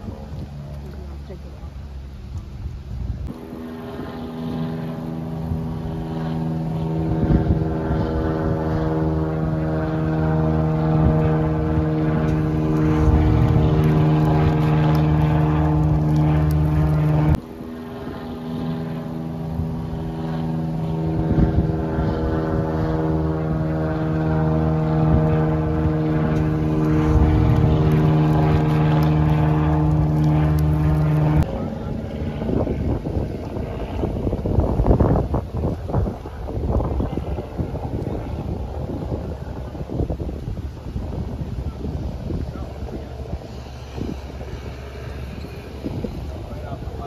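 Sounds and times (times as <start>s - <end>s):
low engine drone: 0.0s - 47.0s.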